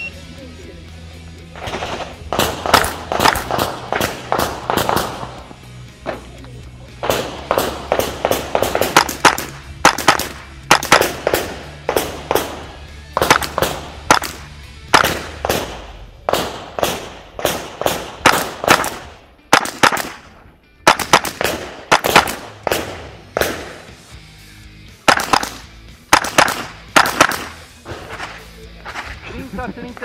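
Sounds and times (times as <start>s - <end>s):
rifle shots fired rapidly: 1.6s - 6.3s, 7.0s - 24.0s, 25.0s - 29.0s.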